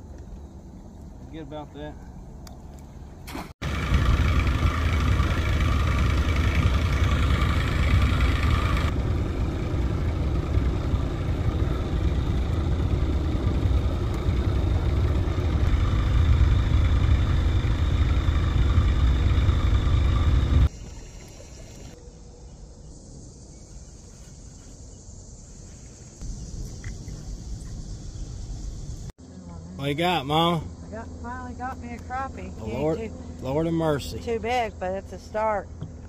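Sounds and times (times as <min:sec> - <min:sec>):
boat motor running: 0:03.3 - 0:22.0.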